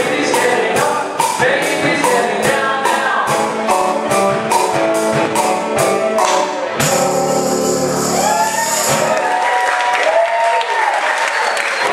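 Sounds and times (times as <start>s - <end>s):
person singing: 0.0s - 4.1s
steady percussion beat: 0.0s - 9.4s.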